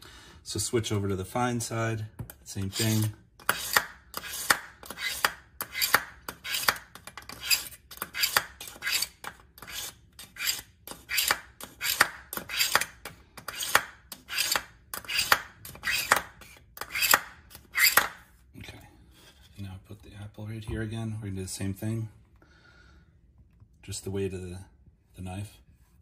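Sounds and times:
knife scraping through sharpener: 2.6s - 12.8s, 13.4s - 18.1s.

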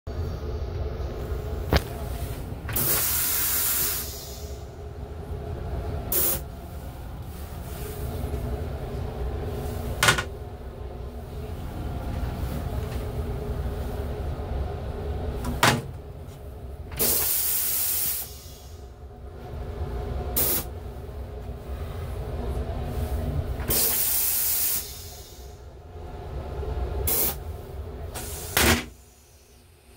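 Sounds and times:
moving train rumble: 0.1s - 29.9s
toilet flushing with a hiss: 2.7s - 4.7s, 17.0s - 18.9s, 23.6s - 25.6s, 27.0s - 27.4s, 28.2s - 29.5s.

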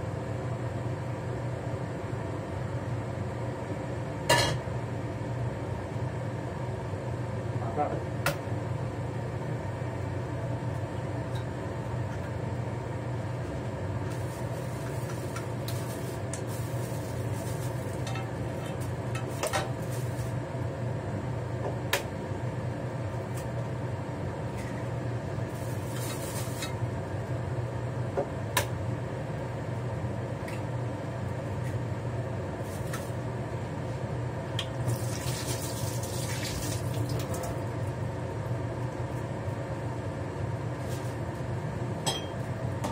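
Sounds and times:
fan hum: 0.0s - 42.9s
tap water running into sink: 34.6s - 37.6s.

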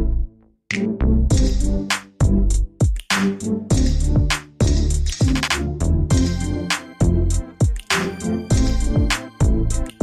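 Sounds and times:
sharp percussion hits: 2.8s - 9.6s.

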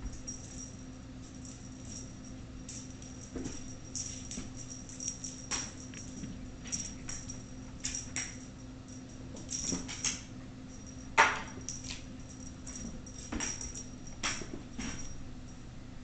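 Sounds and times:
kittens thumping and scuffling: 2.7s - 8.5s, 9.2s - 10.3s, 11.2s - 15.2s.

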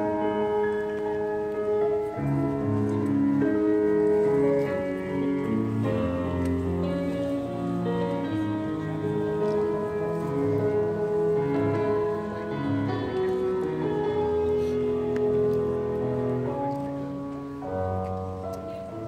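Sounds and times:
slow keyboard chords: 0.0s - 19.0s.

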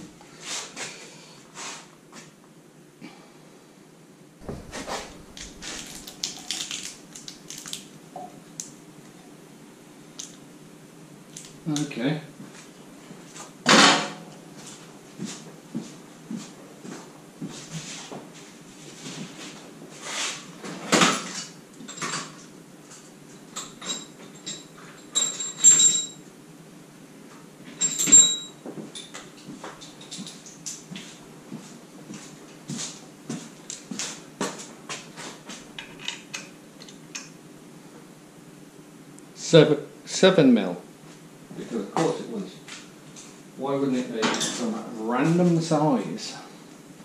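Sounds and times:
hand tools and metal parts clattering: 23.6s - 26.2s, 27.7s - 30.5s.

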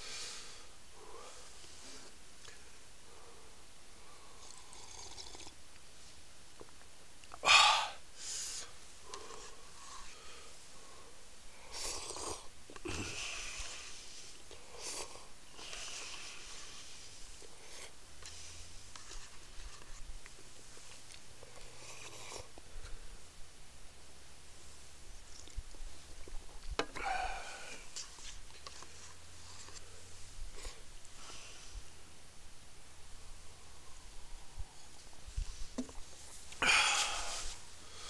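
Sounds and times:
soft breathy puffs: 0.0s - 4.9s, 7.4s - 23.3s, 24.4s - 32.2s, 33.1s - 38.0s
loud sharp sniff: 8.2s - 10.6s, 36.7s - 38.0s.

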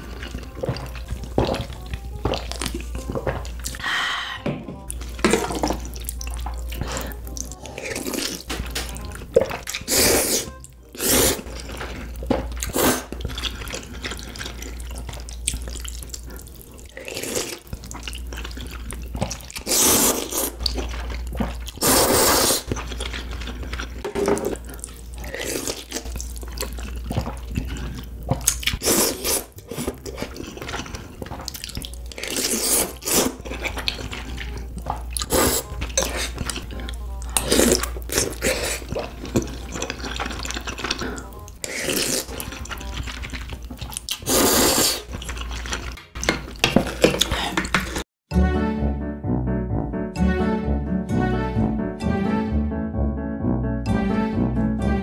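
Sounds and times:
chewing mouth sounds: 4.9s - 48.0s
slurping noodles: 9.5s - 36.6s, 37.4s - 46.0s.

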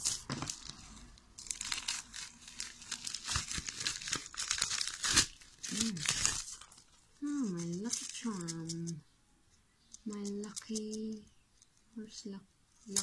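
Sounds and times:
plastic bag crinkling and tearing: 0.0s - 9.0s.

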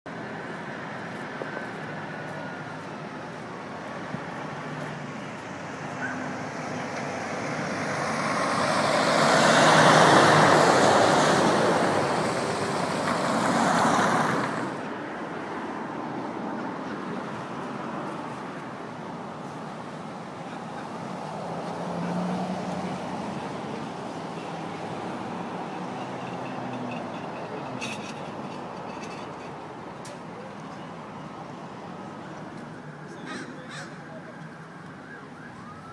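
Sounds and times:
traffic rumble: 0.1s - 35.9s
car passing close: 3.7s - 19.0s, 19.8s - 29.3s.

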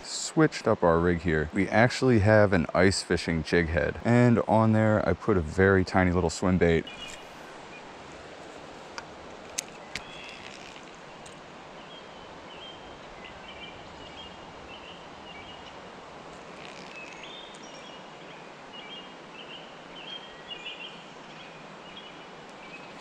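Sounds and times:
outdoor background hiss: 0.0s - 23.0s
birds chirping: 5.3s - 23.0s.

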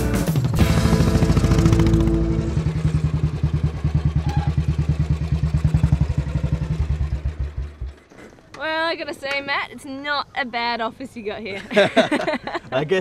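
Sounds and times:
motorcycle engine idling: 0.0s - 8.5s.

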